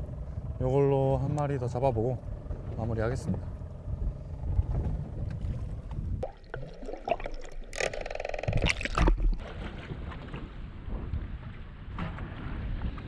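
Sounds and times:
wind buffeting microphone: 0:00.0 - 0:06.3
low rumble: 0:00.0 - 0:13.0
short buzzing rattle: 0:07.6 - 0:09.0.

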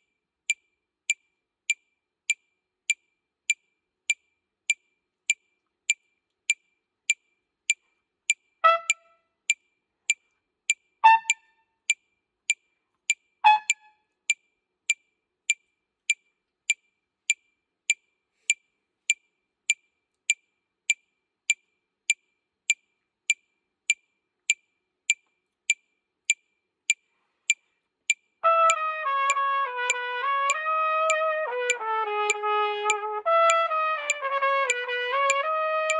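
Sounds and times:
metronome clicking: 0:00.5 - 0:18.0, 0:28.1 - 0:35.9
trumpet short notes: 0:08.6 - 0:09.2, 0:11.0 - 0:11.5, 0:13.4 - 0:14.0, 0:28.4 - 0:35.9.

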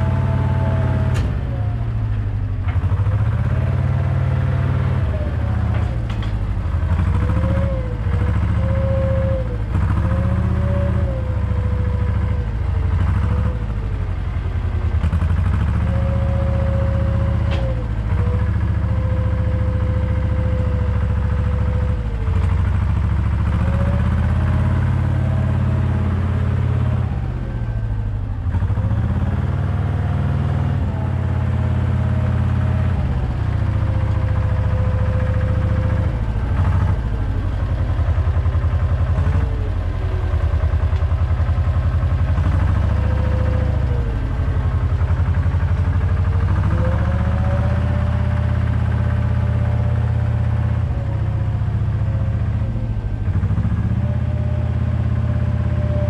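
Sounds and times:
diesel engine running: 0:00.0 - 0:56.0
engine whine: 0:00.0 - 0:56.0.

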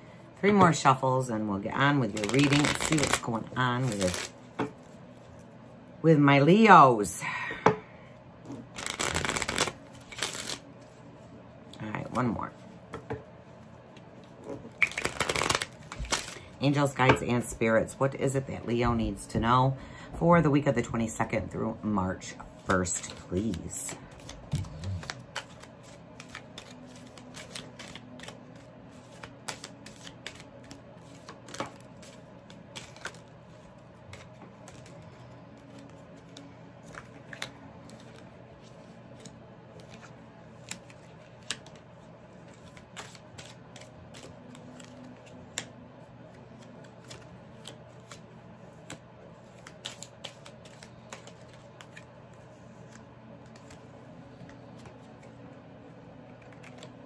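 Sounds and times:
faint steady hum: 0:00.0 - 0:57.0
cards snapping and tapping: 0:08.8 - 0:10.6, 0:14.8 - 0:16.4.

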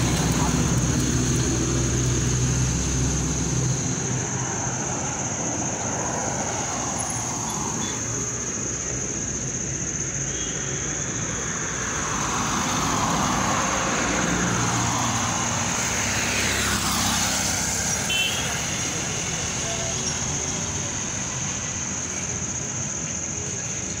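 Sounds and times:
car passing close by: 0:11.4 - 0:21.4.

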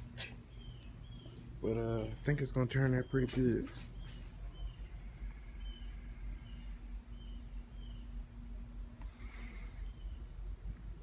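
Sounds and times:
faint steady hum: 0:00.0 - 0:11.0
bird chirps: 0:00.5 - 0:02.2, 0:02.8 - 0:08.2.

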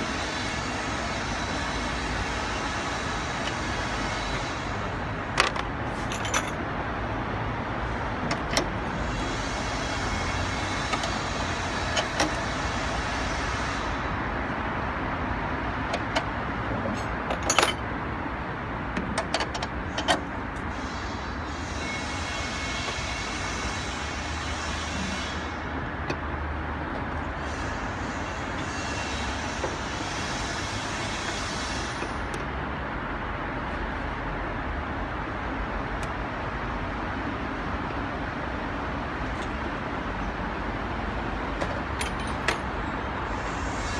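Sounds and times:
road noise: 0:00.0 - 0:43.9
wrench and bolts clinking: 0:05.4 - 0:06.6, 0:17.3 - 0:17.9, 0:41.8 - 0:42.7.

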